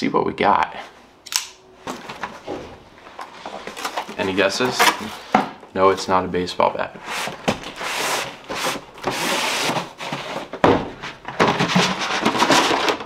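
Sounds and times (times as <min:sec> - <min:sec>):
cardboard and paper rustling: 0:01.8 - 0:06.2, 0:07.0 - 0:13.0.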